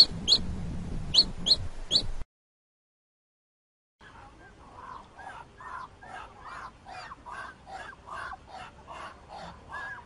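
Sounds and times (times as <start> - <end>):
ducks hoarse calls: 4.0 - 10.0.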